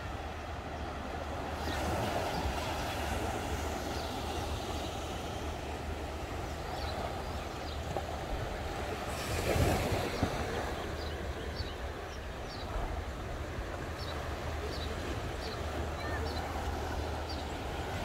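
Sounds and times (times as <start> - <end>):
surf washing onto shore: 0.0 - 18.0.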